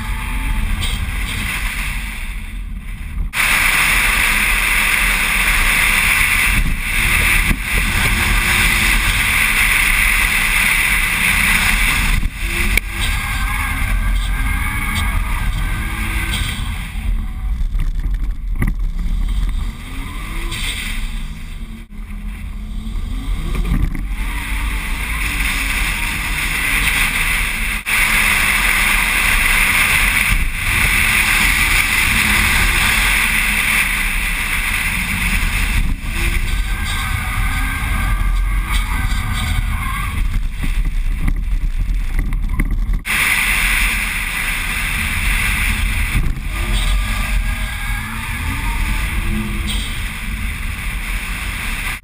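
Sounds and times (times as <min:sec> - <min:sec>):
wind noise on microphone: 0:00.0 - 0:52.0
car engine revving: 0:03.2 - 0:41.7.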